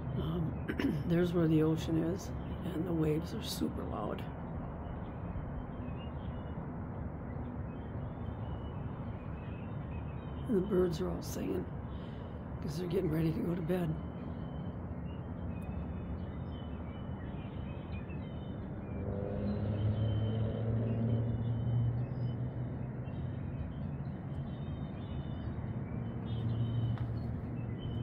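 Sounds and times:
low engine drone: 0.0 - 28.0
small birds chirping: 7.3 - 20.2, 20.9 - 28.0.

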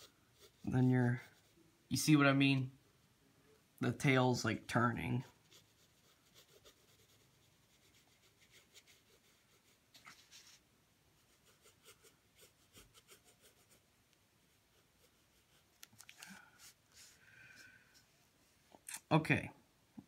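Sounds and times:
pencil scratching on paper: 0.0 - 1.6, 5.3 - 10.6, 11.2 - 13.8, 14.7 - 15.7.

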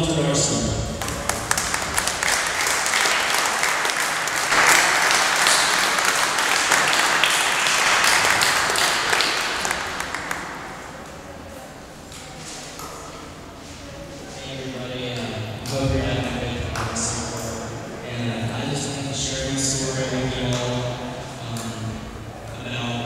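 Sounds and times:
audience applauding: 0.9 - 11.2.

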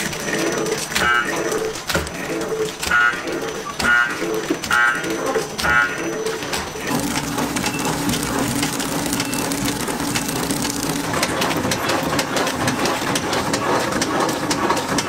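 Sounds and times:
packaging machine crackling clatter: 6.4 - 15.0
low machine hum: 6.8 - 14.3.

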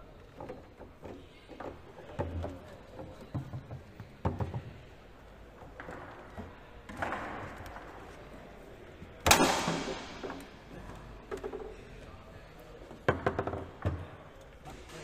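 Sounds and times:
loud bang echoing: 9.2 - 10.6.

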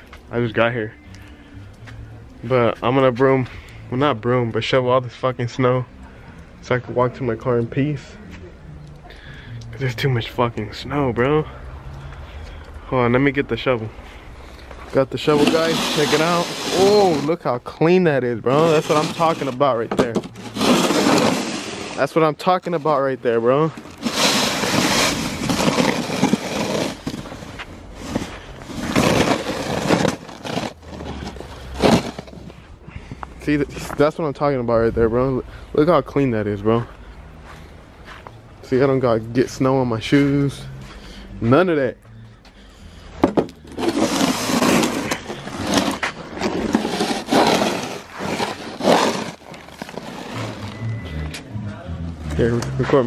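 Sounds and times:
snow shovel scraping pavement: 15.0 - 17.4, 18.5 - 23.0, 23.6 - 32.6, 43.7 - 50.9.

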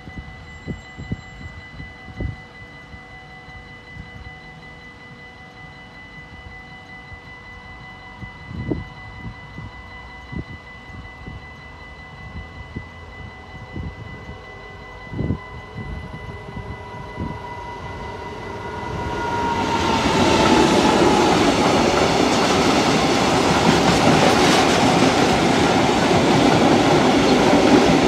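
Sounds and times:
level-crossing warning bell: 0.0 - 28.0
wind buffeting microphone: 8.2 - 28.0.

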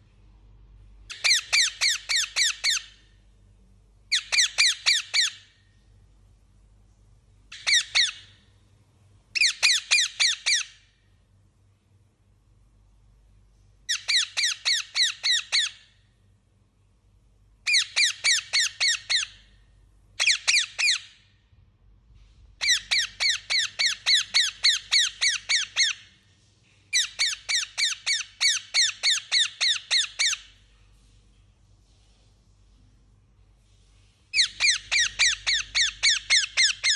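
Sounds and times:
parakeet calling: 1.1 - 3.1, 4.1 - 5.5, 7.5 - 8.4, 9.4 - 10.9, 13.9 - 15.9, 17.7 - 19.5, 20.2 - 21.2, 22.6 - 26.1, 26.9 - 30.6, 34.3 - 36.9.

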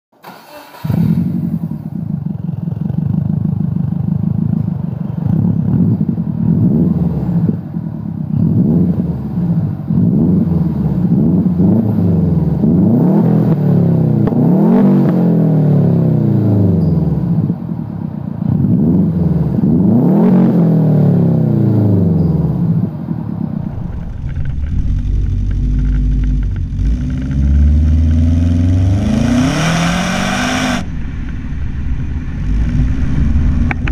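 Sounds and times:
deep steady exhaust note: 1.1 - 33.9
car engine revving: 8.4 - 16.8, 23.4 - 33.9.

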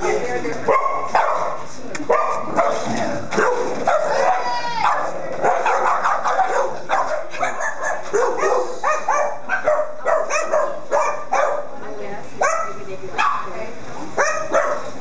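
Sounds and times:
dogs barking and yipping: 0.0 - 11.8, 12.4 - 13.6, 14.2 - 15.0
dog yelping: 3.4 - 11.7, 14.2 - 14.9.

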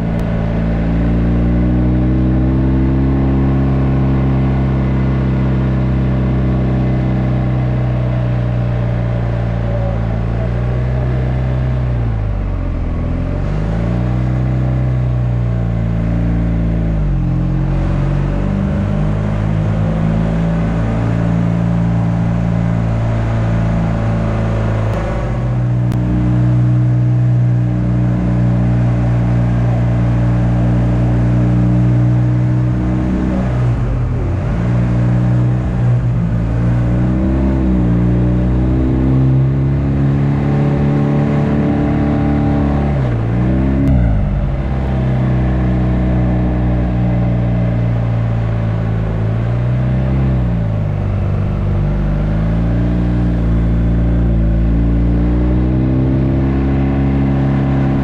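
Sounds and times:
motorcycle engine running: 39.4 - 58.0.

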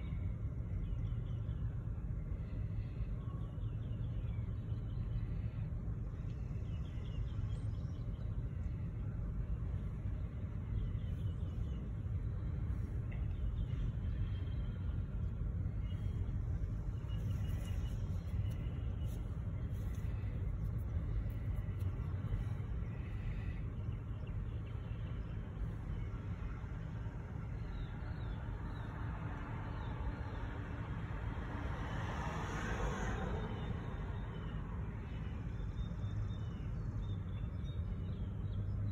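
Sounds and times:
road vehicles rumbling: 0.0 - 38.9
vehicle passing close by: 29.4 - 34.3.

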